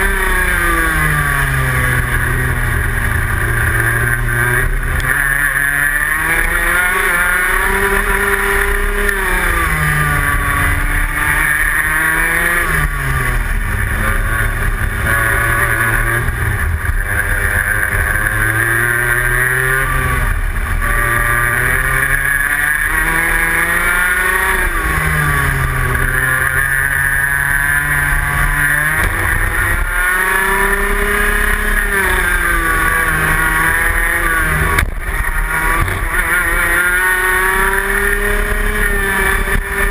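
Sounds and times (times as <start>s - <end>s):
kart engine revving: 0.0s - 39.9s.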